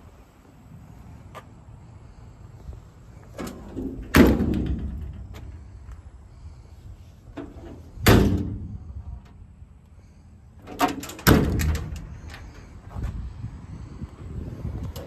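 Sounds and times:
metal doors banging shut: 0:03.4 - 0:05.5, 0:07.4 - 0:08.8, 0:10.6 - 0:12.5.

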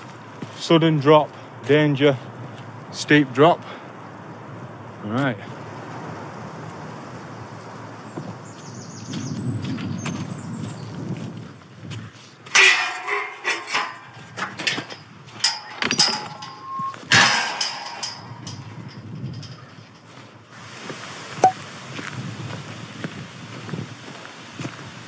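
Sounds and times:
metal gate clanking and rattling: 0:12.4 - 0:20.5.

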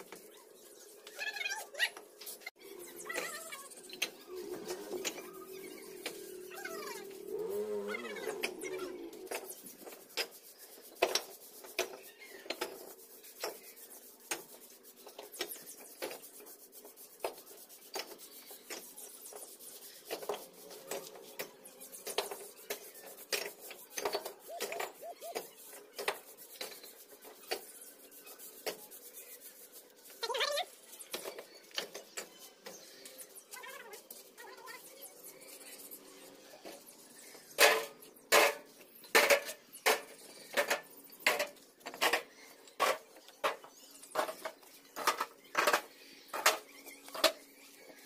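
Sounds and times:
animal call: 0:02.6 - 0:09.5.

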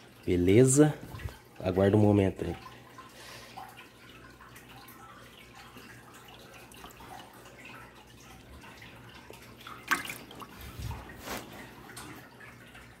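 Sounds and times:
faint steady hum: 0:00.0 - 0:13.0
water splashing in bucket: 0:03.5 - 0:13.0.

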